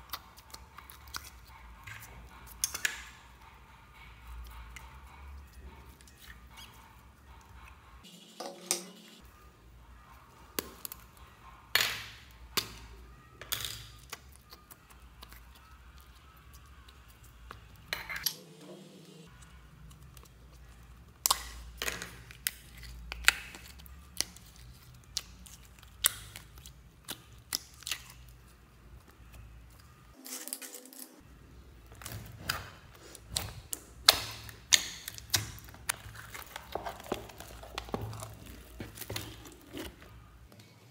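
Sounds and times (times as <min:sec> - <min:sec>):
slime squishing and popping: 0:21.2 - 0:28.4, 0:31.9 - 0:40.1.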